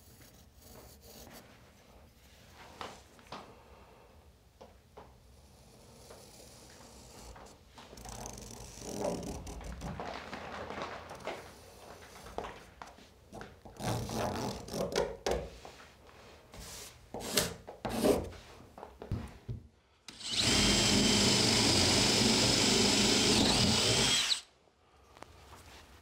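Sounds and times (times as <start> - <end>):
scuffing and small knocks: 17.6 - 19.6
cordless drill boring into wood: 20.1 - 24.5.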